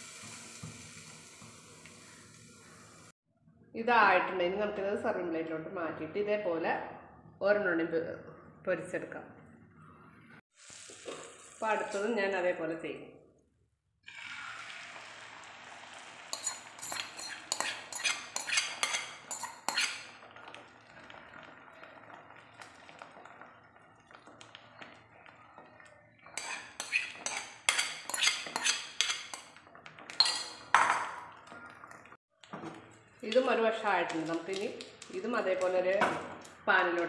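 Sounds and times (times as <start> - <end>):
egg mixture sizzling in butter: 0.0 - 3.1, 10.5 - 12.2, 14.1 - 30.8
metal spoon clinking and scraping: 16.3 - 20.3, 26.2 - 31.1.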